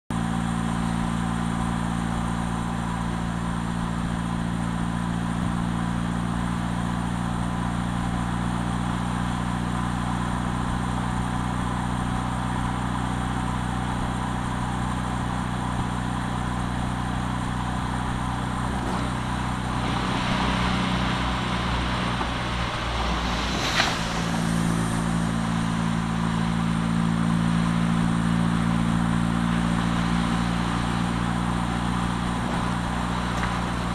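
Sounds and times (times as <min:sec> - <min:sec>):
car engine hum: 0:00.1 - 0:33.9
tyre and wind noise: 0:15.7 - 0:33.9.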